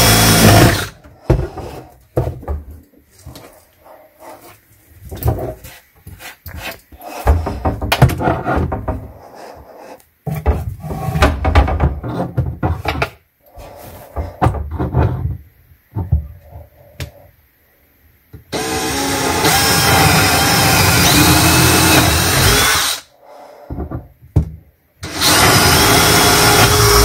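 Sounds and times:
cordless drill running: 0:00.0 - 0:00.9, 0:18.5 - 0:23.0, 0:25.0 - 0:27.0.

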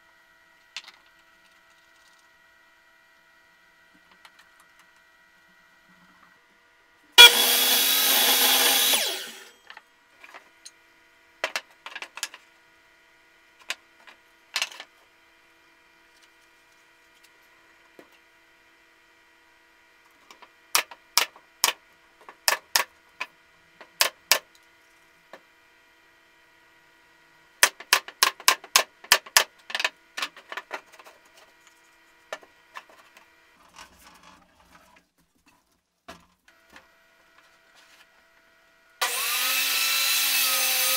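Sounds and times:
pneumatic nailer firing: 0:07.2 - 0:09.5
miter saw cutting plywood: 0:07.2 - 0:09.6, 0:39.0 - 0:40.9.

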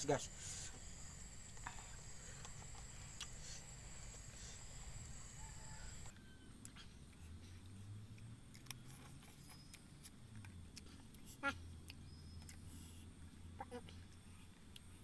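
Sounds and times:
faint high insect buzz: 0:00.0 - 0:06.2
mouth eating sounds: 0:02.4 - 0:03.6.

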